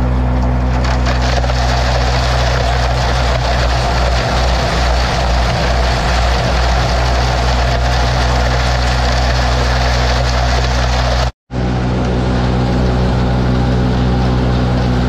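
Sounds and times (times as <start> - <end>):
tractor engine running: 0.0 - 15.0
silage pouring into blower: 0.5 - 11.3.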